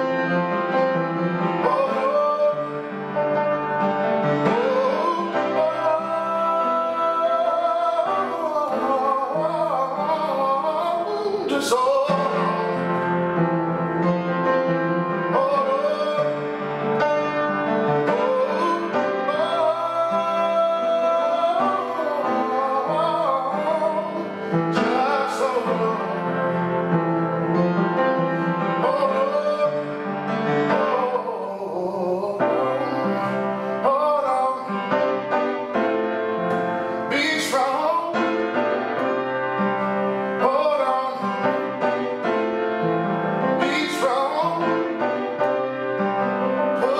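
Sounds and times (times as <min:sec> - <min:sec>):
man singing slow song: 0:00.0 - 0:35.5, 0:36.5 - 0:42.3, 0:43.0 - 0:45.6, 0:46.5 - 0:46.9
piano accompaniment: 0:00.0 - 0:46.9.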